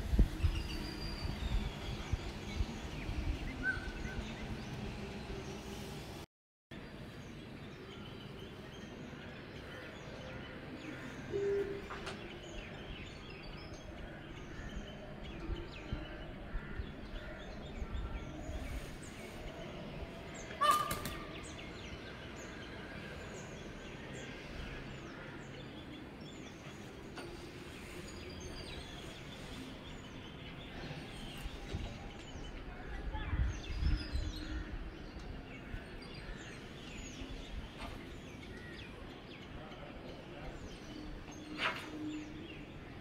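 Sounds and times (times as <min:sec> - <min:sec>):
loud bird call: 0:20.4 - 0:21.6.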